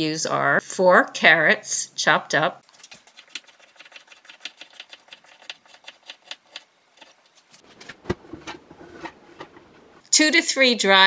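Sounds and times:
scraping carrots off board: 2.6 - 10.0.

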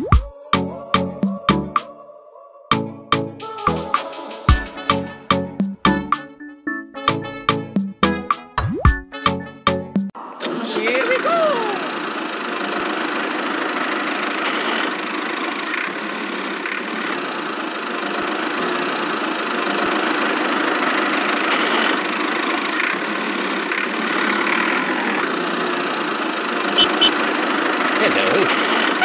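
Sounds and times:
toy tractor running: 10.2 - 29.0.

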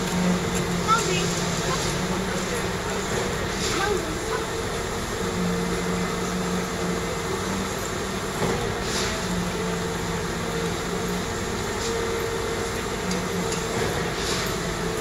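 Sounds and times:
electric train rumbling: 0.0 - 15.0.

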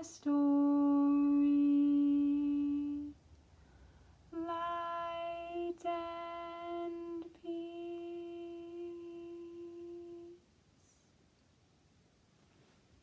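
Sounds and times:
woman humming a long note: 4.4 - 10.4.

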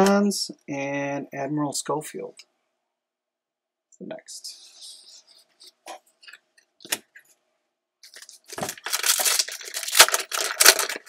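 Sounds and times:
foil wrapper crinkling and tearing: 8.0 - 11.0.

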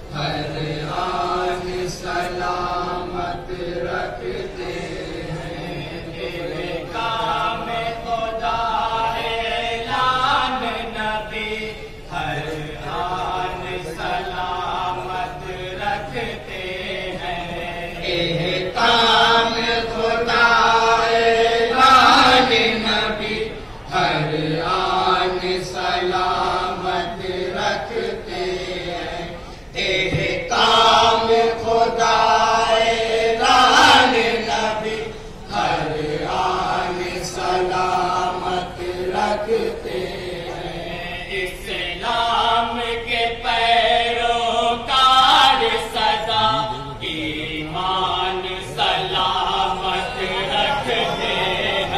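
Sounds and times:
men chanting into a microphone: 0.0 - 51.9.

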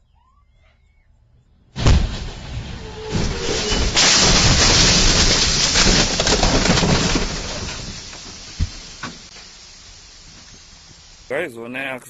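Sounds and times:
glass shattering: 1.8 - 9.3
metal crunching in car crash: 1.8 - 11.0.

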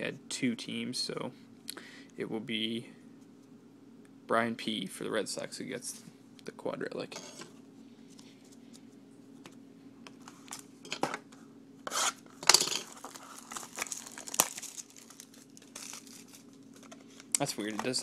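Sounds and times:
plastic wrapper crinkling and tearing: 12.8 - 18.0.

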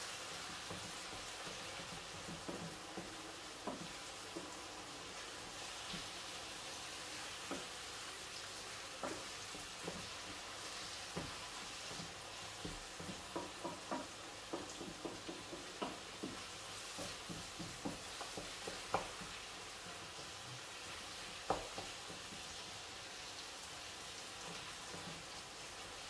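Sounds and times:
sauce sizzling in a frying pan: 0.0 - 26.0
wooden spoon knocking on pan: 0.4 - 5.0, 7.3 - 7.8, 8.9 - 20.6, 21.3 - 22.6, 24.4 - 25.3.

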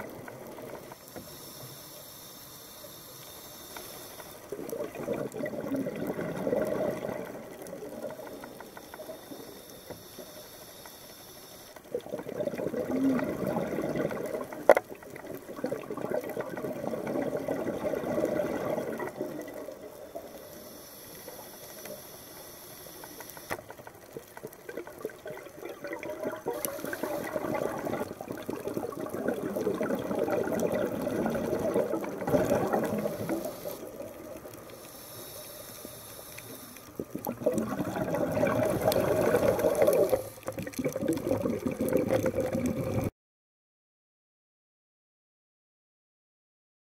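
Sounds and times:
regulator inhalation hiss: 1.0 - 4.5, 8.5 - 11.8, 20.1 - 23.6, 26.5 - 27.6, 32.8 - 34.0, 34.6 - 37.1
exhaled bubbles gurgling: 4.3 - 10.4, 11.8 - 20.7, 23.7 - 43.1.

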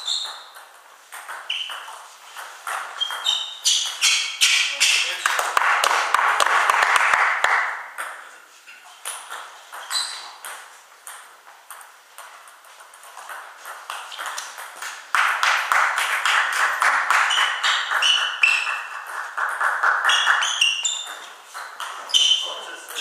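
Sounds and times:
short high squeaks: 0.0 - 0.6, 1.4 - 2.1, 2.7 - 5.2, 9.7 - 10.4, 17.3 - 19.0, 20.0 - 21.4, 22.0 - 22.7.

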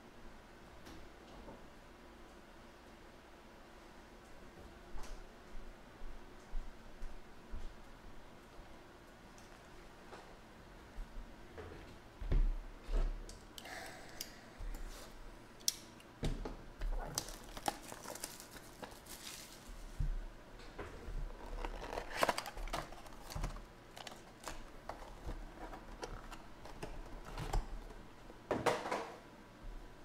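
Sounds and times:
wrapping crinkling and tearing: 17.0 - 20.0, 21.2 - 28.0.

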